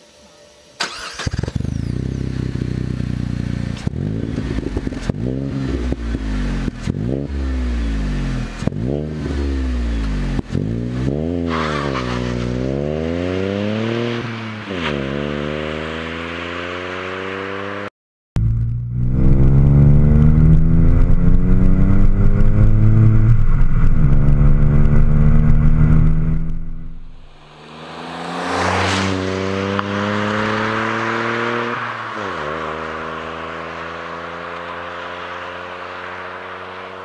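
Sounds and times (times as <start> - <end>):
car engine accelerating: 0.8 - 37.0
car passing by: 27.1 - 37.0.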